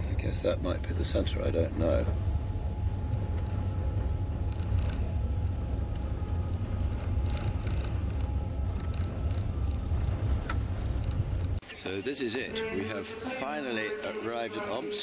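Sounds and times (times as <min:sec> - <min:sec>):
train rumbling on rails: 0:00.0 - 0:11.6
faint steady hum: 0:00.0 - 0:15.0.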